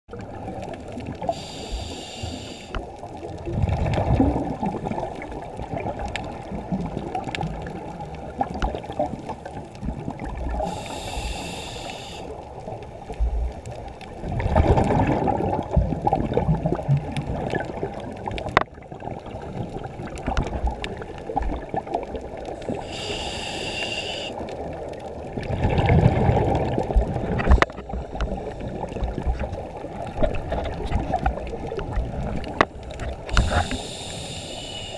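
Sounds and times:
exhaled bubbling underwater: 0.1s - 34.9s
low water wash: 0.1s - 34.9s
regulator inhale hiss: 1.2s - 2.9s, 10.5s - 12.5s, 22.6s - 24.5s, 33.2s - 34.9s.

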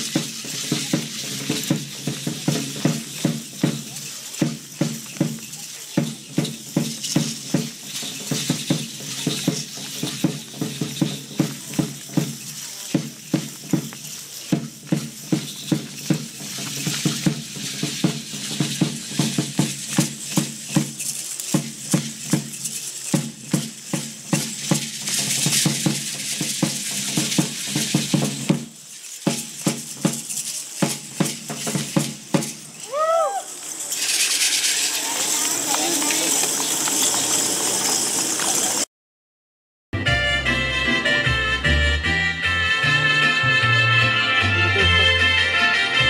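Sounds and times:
large drum beating: 0.0s - 32.7s
maracas rattling: 0.0s - 38.9s, 40.0s - 46.0s.

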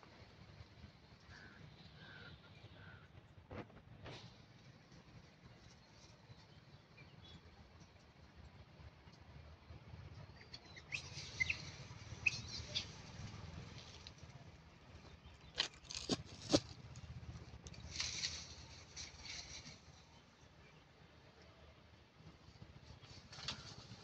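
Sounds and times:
monkeys rustling over bark: 17.7s - 20.1s.

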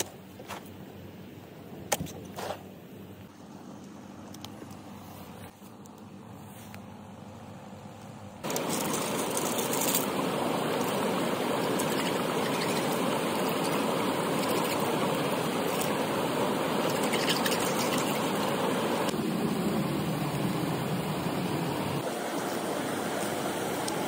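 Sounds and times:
stream running over cascade: 8.4s - 24.0s.

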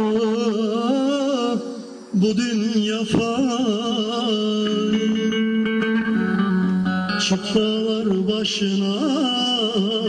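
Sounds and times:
man singing wavering note: 2.2s - 10.0s.

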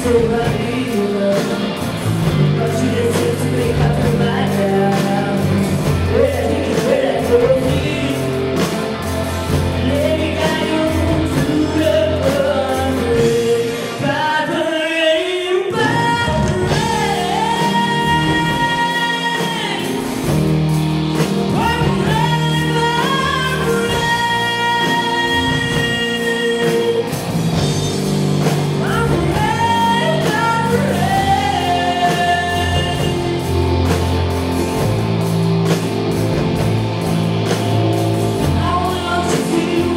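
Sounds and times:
women singing: 0.0s - 8.6s, 9.7s - 20.1s, 21.5s - 27.2s, 28.8s - 33.6s, 38.4s - 39.9s
live pop-rock band: 0.0s - 39.9s.

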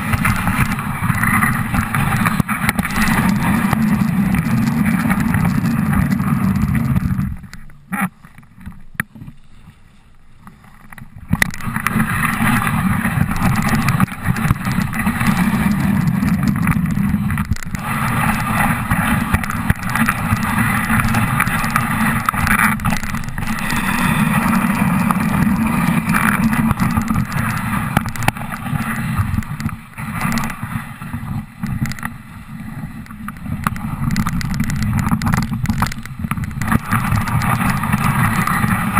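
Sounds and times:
wind buffeting microphone: 11.1s - 38.9s
sled runners hissing on snow: 17.0s - 29.3s.

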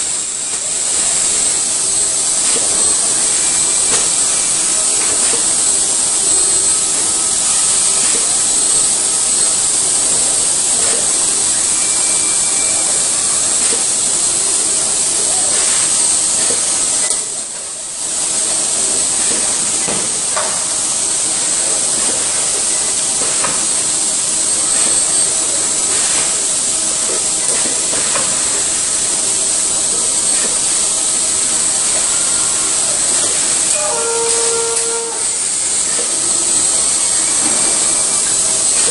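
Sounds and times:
assembly line machine hissing: 0.0s - 38.9s.

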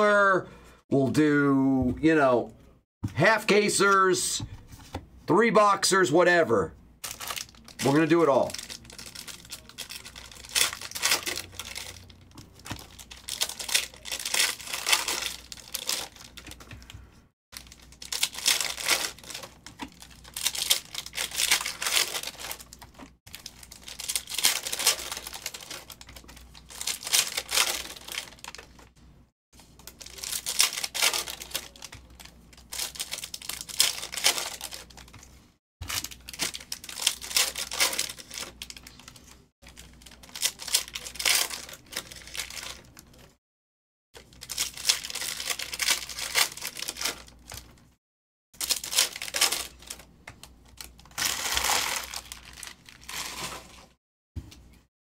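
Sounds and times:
foil wrappers crinkling and tearing: 7.0s - 16.9s, 17.6s - 28.9s, 29.6s - 35.2s, 35.8s - 43.3s, 44.2s - 47.8s, 48.6s - 54.0s.

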